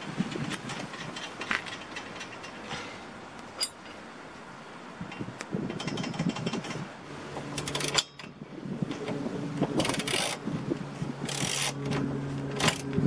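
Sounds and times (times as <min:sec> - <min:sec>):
metal clinks of tools: 0:03.6 - 0:04.0
ratchet wrench clicking: 0:11.2 - 0:11.8.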